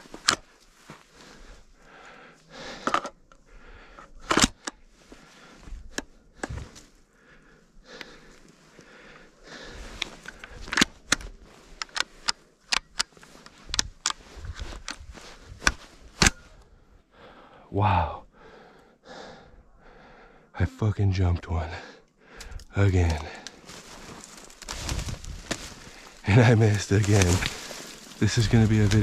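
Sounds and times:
twigs snapping and crackling: 22.4 - 29.0.

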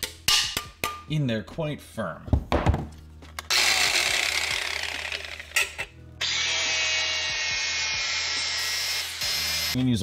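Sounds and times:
power tool motor whining: 3.5 - 9.8.

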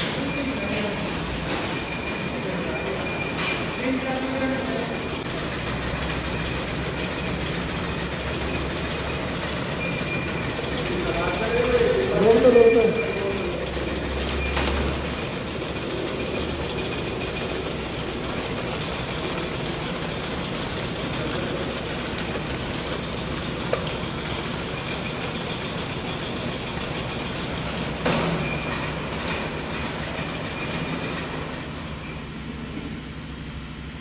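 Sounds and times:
mechanical hiss and hum: 0.0 - 34.0.

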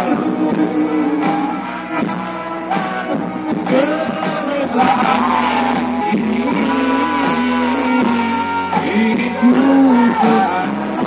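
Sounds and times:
amplified music: 0.0 - 11.0
people singing into microphones: 0.0 - 11.0.

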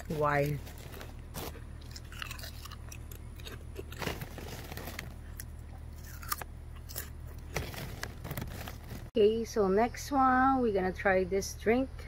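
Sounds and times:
person chewing crunchy snack: 0.0 - 9.1.

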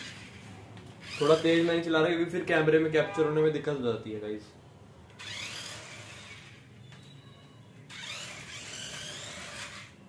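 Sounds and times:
toy car electric motor whining: 0.0 - 1.8, 5.1 - 7.1, 7.9 - 10.0.

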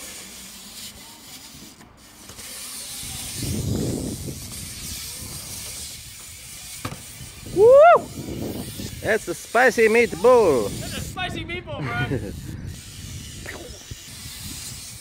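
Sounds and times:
bike tyres rolling on concrete: 0.0 - 15.0
man whooping: 7.5 - 8.3.

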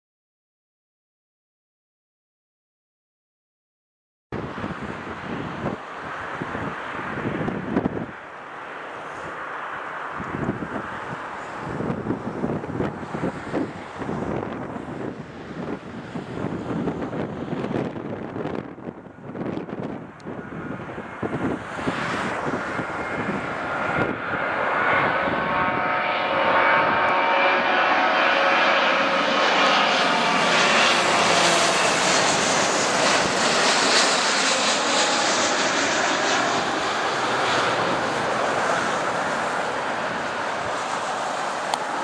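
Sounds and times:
jet airliner roar: 4.4 - 42.0
whining fan tone: 4.4 - 42.0.

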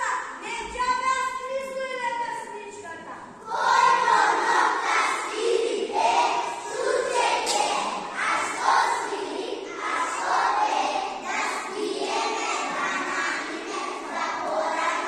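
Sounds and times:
children shouting: 3.4 - 15.0.

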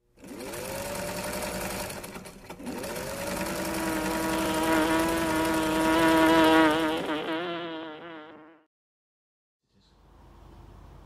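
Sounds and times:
sewing machine motor hum: 0.1 - 7.1.

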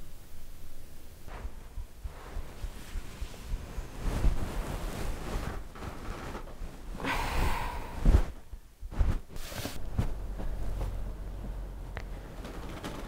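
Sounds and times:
bedding rustling: 1.3 - 13.0
breathy exhale: 7.0 - 8.3.

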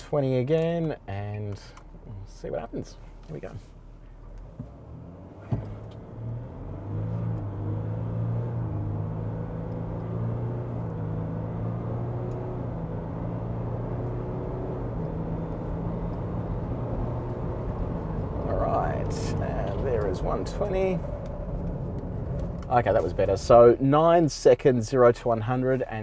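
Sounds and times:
diesel engine accelerating: 4.4 - 23.9.

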